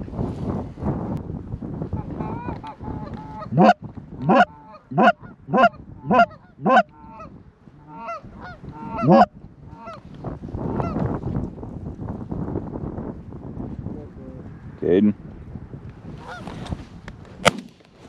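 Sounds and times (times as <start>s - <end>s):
goose honking: 2.2s - 10.0s.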